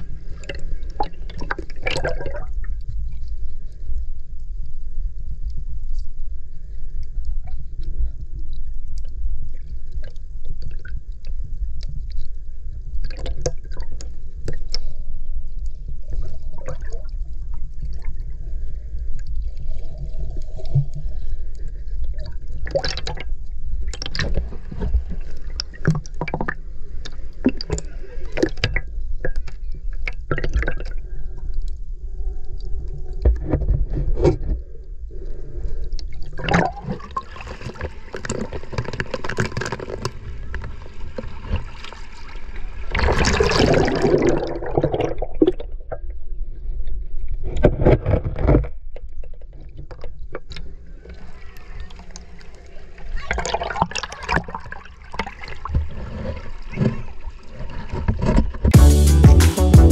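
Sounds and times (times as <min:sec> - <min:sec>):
bubbling and gurgling: 0:00.0 - 0:03.0, 0:16.1 - 0:26.7, 0:27.4 - 0:31.5, 0:36.0 - 0:46.4, 0:51.1 - 0:57.2
rush of water: 0:36.3 - 0:45.6, 0:51.0 - 0:58.5
underwater surge rumble: 0:36.3 - 0:46.0.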